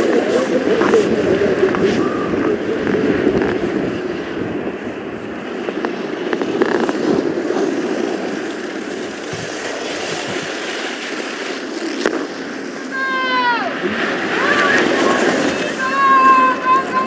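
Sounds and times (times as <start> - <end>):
skis rushing over icy snow: 5.5 - 13.1, 13.8 - 17.0.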